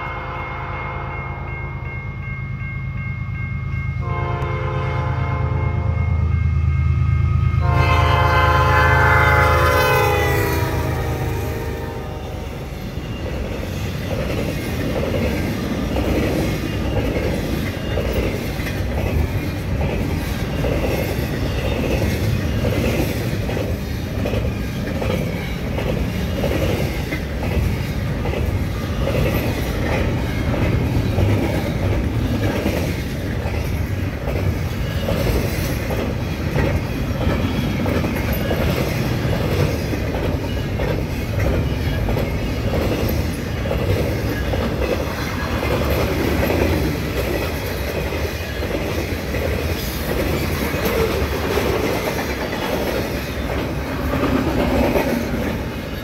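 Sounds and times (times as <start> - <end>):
train horn: 0.0 - 1.5, 4.0 - 6.2, 7.3 - 12.7
train cars clickety-clack: 7.6 - 56.0.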